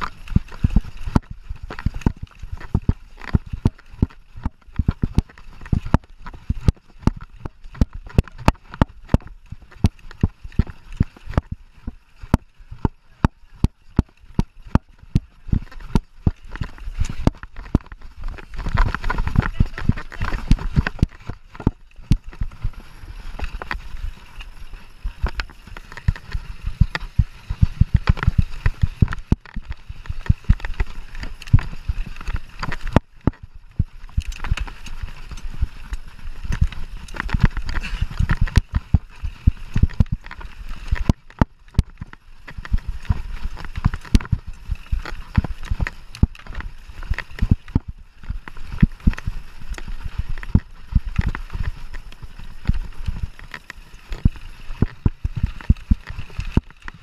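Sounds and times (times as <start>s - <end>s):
mountain bike rattling over bumps: 0.0s - 57.0s.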